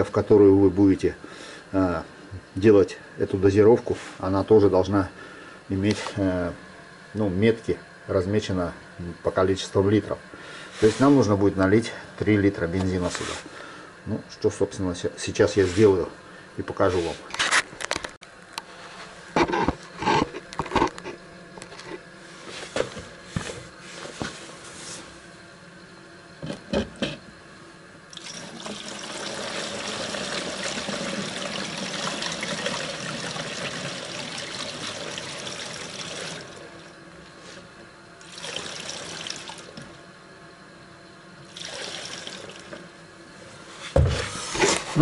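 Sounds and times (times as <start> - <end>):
fuel pouring into a plastic jug: 28.1 - 36.7, 38.2 - 39.8, 41.5 - 42.7.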